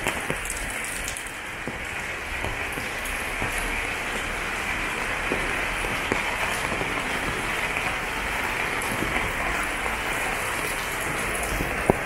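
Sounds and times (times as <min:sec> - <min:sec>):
rain on wet paving: 0:00.0 - 0:12.0.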